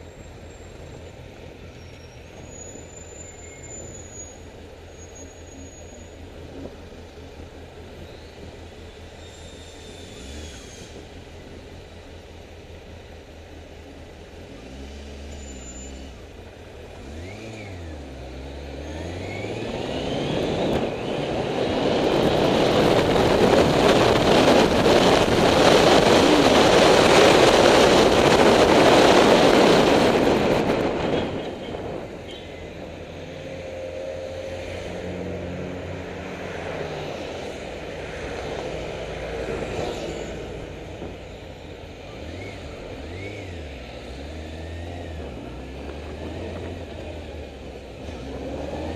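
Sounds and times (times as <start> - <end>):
wind rushing over microphone: 19.3 - 43.6.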